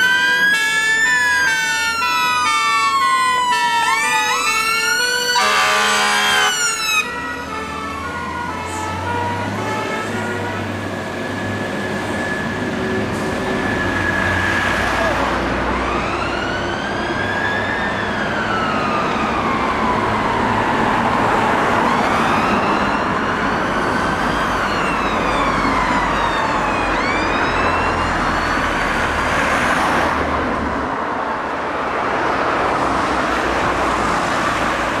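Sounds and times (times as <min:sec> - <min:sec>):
electronic sirens wailing: 0:00.0 - 0:10.3, 0:15.7 - 0:29.2
road traffic noise: 0:00.0 - 0:35.0
truck engine: 0:00.0 - 0:35.0.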